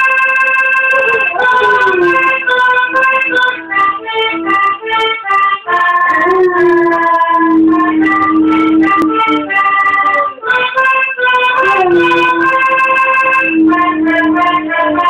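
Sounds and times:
free-reed instrument playing tune: 0:00.0 - 0:15.0
dog howling: 0:00.8 - 0:02.5, 0:06.1 - 0:10.4, 0:11.6 - 0:15.0.

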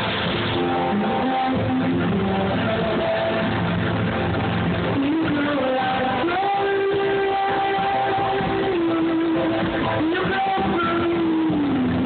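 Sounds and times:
bass and guitar: 0:00.0 - 0:12.0
high voice singing long notes: 0:04.8 - 0:12.0.

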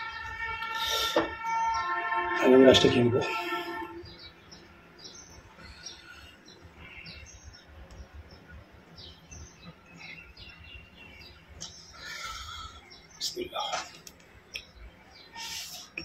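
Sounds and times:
faint birds chirping: 0:00.0 - 0:16.0.

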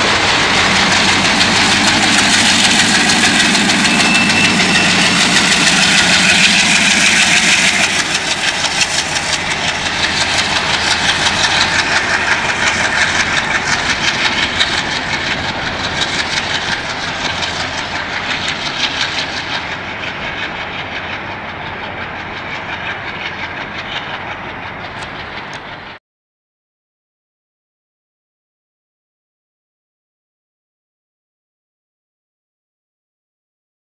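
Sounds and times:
diesel locomotive engine: 0:00.0 - 0:26.0
freight wagons rattling over rail joints: 0:00.0 - 0:26.0.

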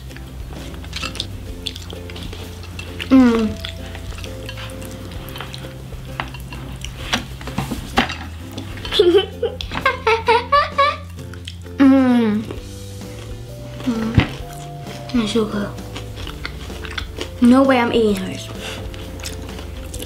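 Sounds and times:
crunchy food chewing: 0:00.0 - 0:09.9, 0:11.0 - 0:20.0
person humming: 0:03.1 - 0:03.8, 0:13.8 - 0:14.5.

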